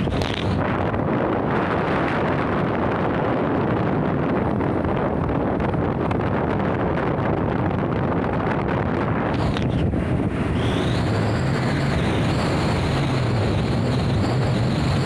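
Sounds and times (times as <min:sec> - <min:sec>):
wind rushing over microphone: 0:00.0 - 0:15.0
motorcycle engine: 0:09.2 - 0:15.0.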